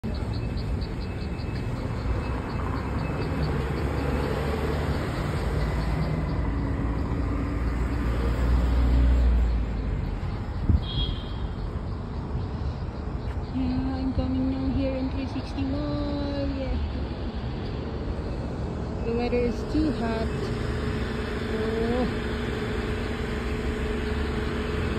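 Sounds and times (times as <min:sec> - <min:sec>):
traffic rumble: 0:00.0 - 0:24.9.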